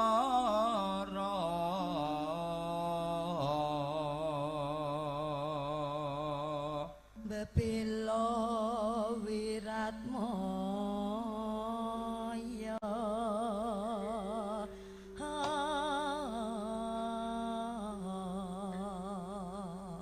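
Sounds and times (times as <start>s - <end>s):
faint steady held note: 0.0s - 11.4s, 12.4s - 20.0s
man singing held note: 0.0s - 20.0s
woman singing with vibrato: 6.6s - 20.0s.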